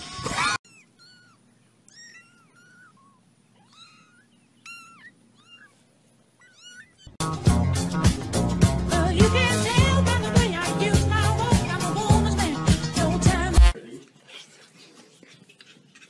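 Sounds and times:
kitten mewing: 0.4s - 7.2s
upbeat music: 7.2s - 13.8s.

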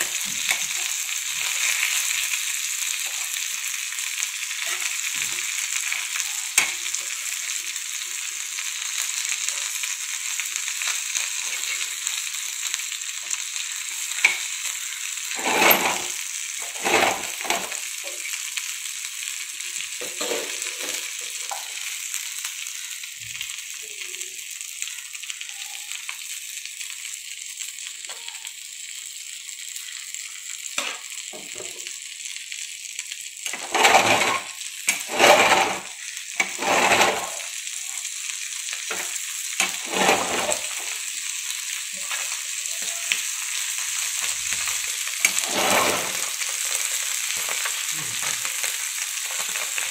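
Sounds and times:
fish sizzling in oil: 0.0s - 49.9s
metal spatula scraping pan: 15.4s - 17.8s, 33.5s - 37.5s, 38.9s - 40.9s, 45.2s - 46.3s.

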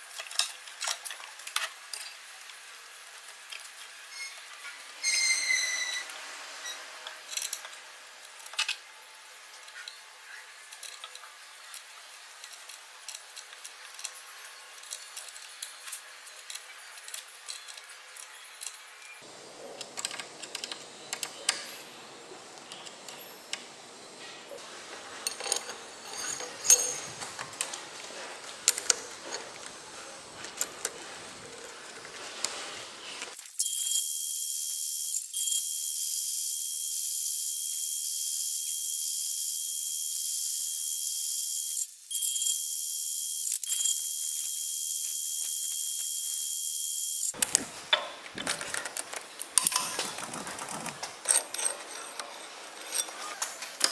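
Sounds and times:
metallic clicks and clinks: 25.2s - 27.8s, 47.3s - 53.9s.

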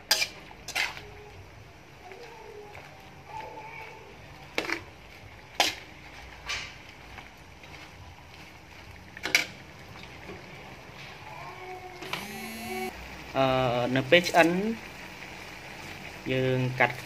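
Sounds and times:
spatula scraping against wok: 0.0s - 1.2s, 4.5s - 9.6s.

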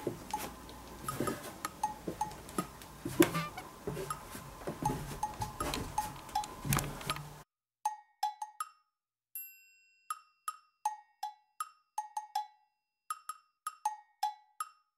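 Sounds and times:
bell-like chime: 9.4s - 10.4s.

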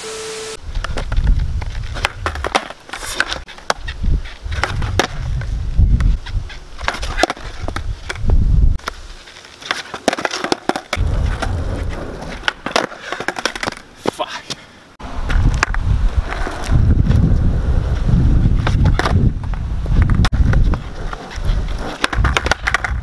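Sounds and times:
skateboard wheels rolling on asphalt: 0.6s - 23.0s
skateboard tail snapping and landing: 0.8s - 3.9s, 4.5s - 6.1s, 6.8s - 9.0s, 9.6s - 14.2s, 15.3s - 17.2s, 18.6s - 23.0s.

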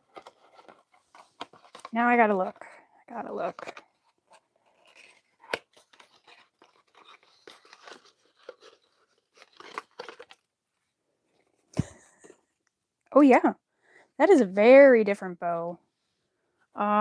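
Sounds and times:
plastic blister pack crinkling: 4.7s - 10.5s.

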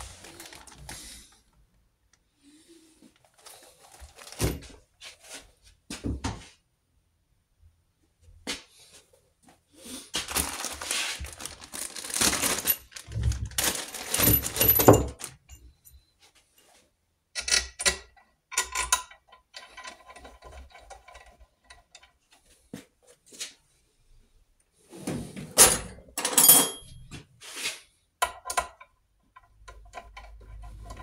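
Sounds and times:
rustling: 0.0s - 1.5s, 3.0s - 5.4s, 10.2s - 15.4s
metal bolts clinking: 25.6s - 27.0s.

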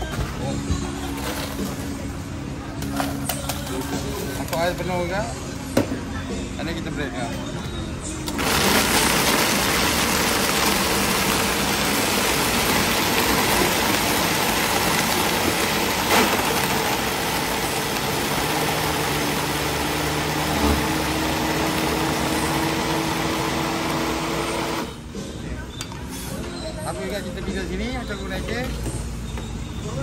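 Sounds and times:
blender motor running: 8.3s - 25.0s.

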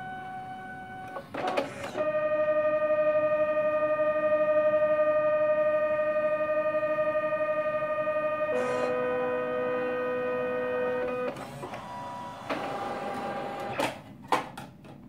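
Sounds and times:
printer motor whine with flutter: 0.0s - 13.9s
printer mechanical rattle: 0.3s - 2.3s, 11.0s - 14.0s.

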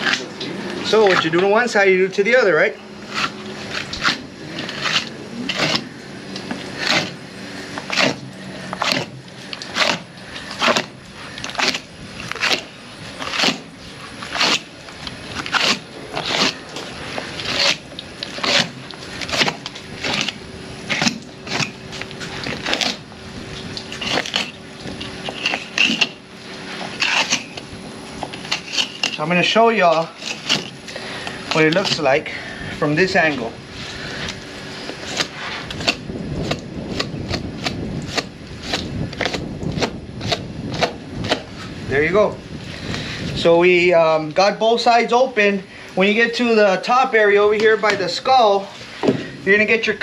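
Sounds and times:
knife slicing through hide: 3.0s - 5.9s, 6.6s - 7.2s, 7.8s - 14.7s, 15.3s - 21.8s, 22.4s - 23.0s, 23.9s - 24.6s, 25.2s - 26.2s, 26.9s - 27.6s, 28.4s - 29.2s, 29.8s - 30.8s, 31.5s - 32.0s, 35.0s - 41.5s.

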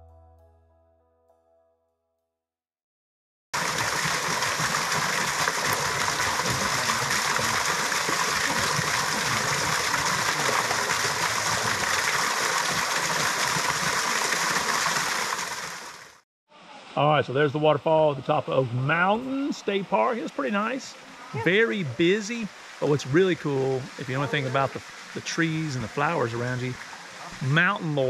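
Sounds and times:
waterfall splashing onto rock: 3.6s - 16.2s.

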